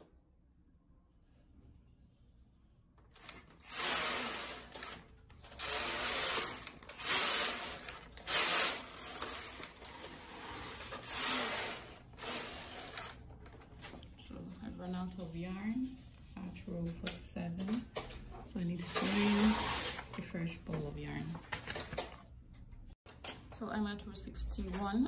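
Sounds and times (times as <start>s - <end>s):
knitting machine carriage sliding: 3.1s - 13.2s, 18.8s - 20.3s.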